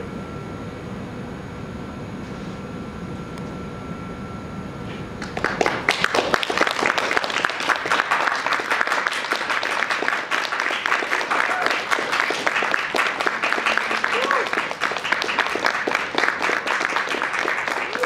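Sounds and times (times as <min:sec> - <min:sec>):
low room hum: 0:00.0 - 0:18.0
audience applauding: 0:05.2 - 0:18.0.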